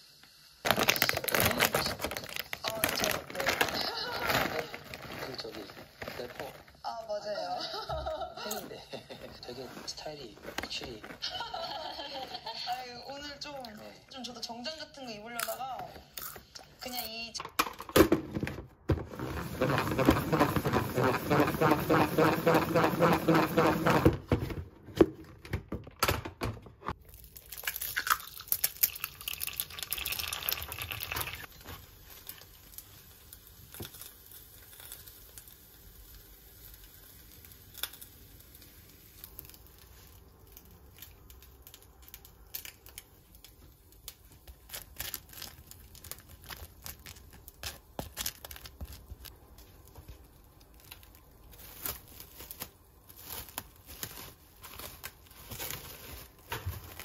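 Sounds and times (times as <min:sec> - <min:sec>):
cling film rustling and crinkling: 0:00.6 - 0:06.9, 0:07.7 - 0:13.8, 0:26.8 - 0:57.0.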